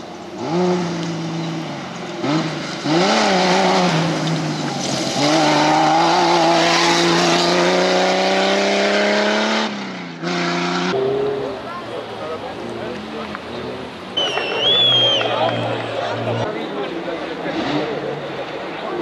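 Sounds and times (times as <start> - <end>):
tyres throwing loose dirt: 0.0 - 9.4
car engine revving: 0.0 - 19.0.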